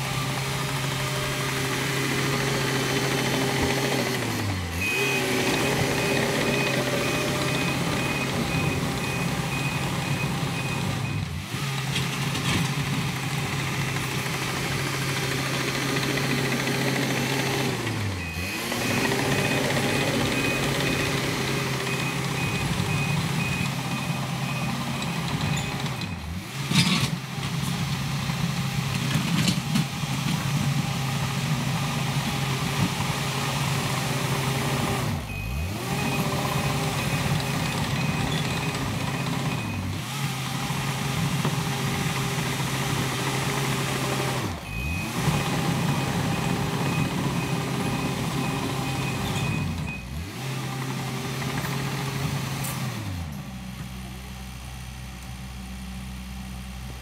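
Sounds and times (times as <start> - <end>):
bulldozer diesel engine: 0.0 - 57.0
backup alarm beeping: 4.7 - 11.4, 16.5 - 26.3, 35.1 - 39.9, 44.6 - 50.2.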